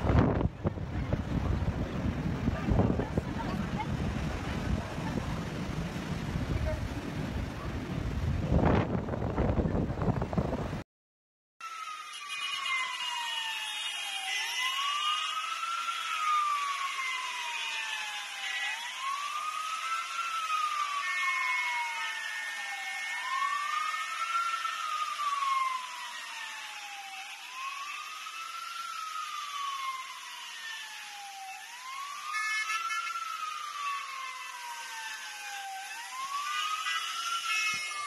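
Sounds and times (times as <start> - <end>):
siren wailing slowly: 11.6 - 38.0.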